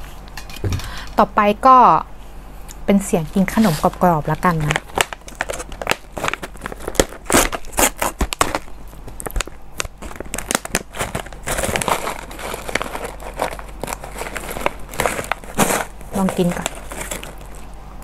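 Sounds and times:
snack packaging crackling: 3.9 - 17.8.

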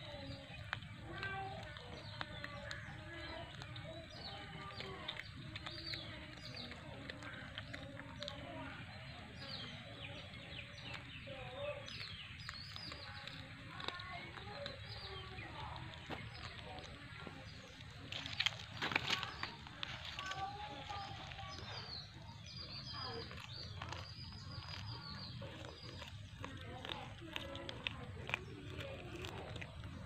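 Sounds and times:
birds chirping: 0.0 - 30.0
faint distant voices: 0.0 - 30.0.

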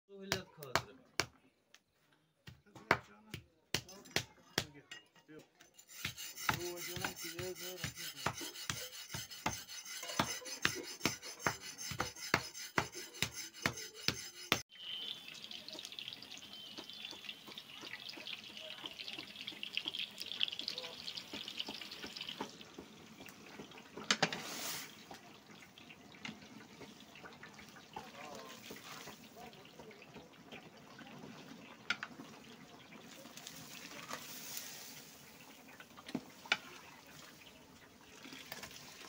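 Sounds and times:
stirring scrape: 5.6 - 14.7, 23.5 - 25.1, 33.4 - 35.3
wooden mallet pounding meat: 6.0 - 14.6
cauldrons simmering with hiss: 14.7 - 39.0.

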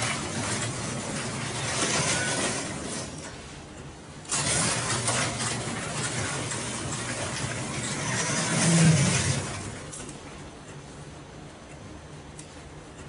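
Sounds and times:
overhead door rumbling and rattling: 4.3 - 10.0.

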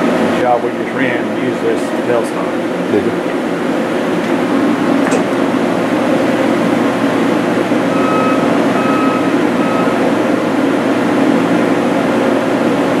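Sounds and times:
industrial machine hum: 0.0 - 13.0
short high beeps: 7.9 - 10.0.

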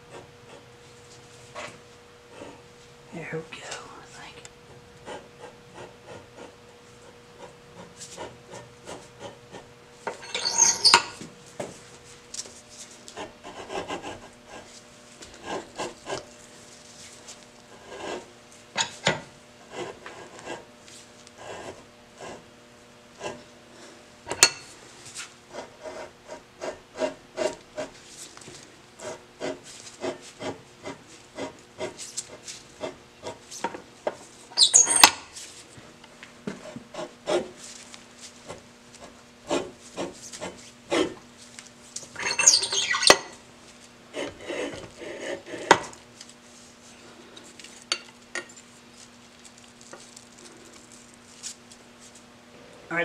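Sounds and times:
metal scraping bursts: 10.2 - 11.2.

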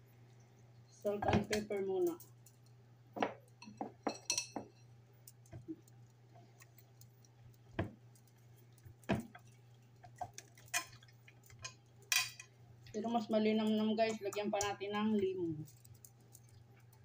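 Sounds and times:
glass clink: 3.2 - 4.8.

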